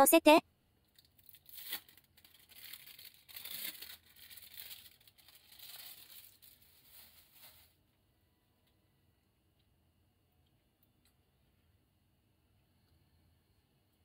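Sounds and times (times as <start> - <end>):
plastic film crinkling: 0.9 - 7.8.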